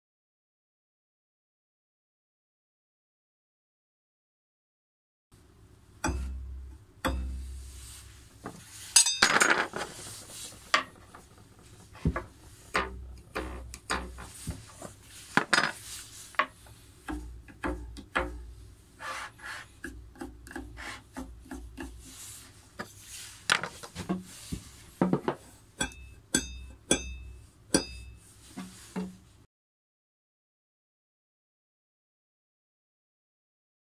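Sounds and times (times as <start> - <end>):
metal blade plucks ringing: 6.0 - 7.5, 9.0 - 9.3, 25.8 - 28.2.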